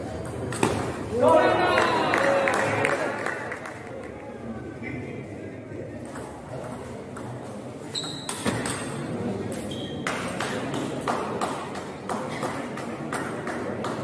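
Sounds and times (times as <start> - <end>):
short high squeaks: 7.9 - 8.6.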